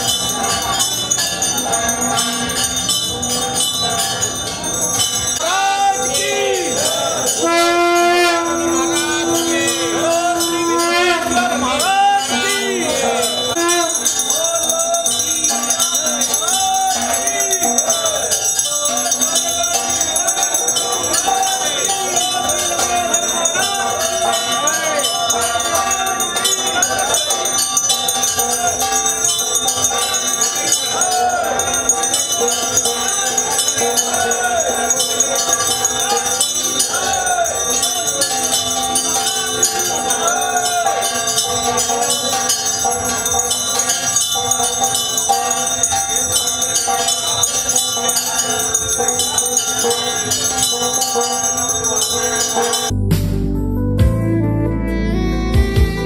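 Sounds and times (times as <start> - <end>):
hand bell ringing: 0.0 - 53.0
people singing a hymn: 5.4 - 14.9.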